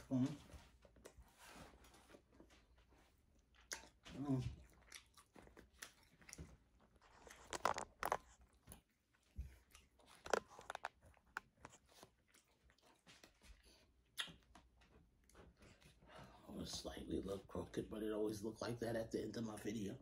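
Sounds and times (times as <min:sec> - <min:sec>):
person chewing food: 0:01.0 - 0:16.4
wet mouth sounds: 0:14.1 - 0:14.4.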